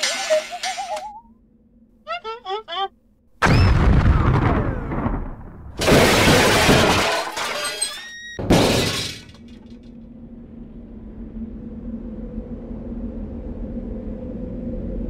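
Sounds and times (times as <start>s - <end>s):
robots crashing: 0.0s - 1.1s, 3.4s - 9.7s
low steady hum: 8.5s - 15.0s.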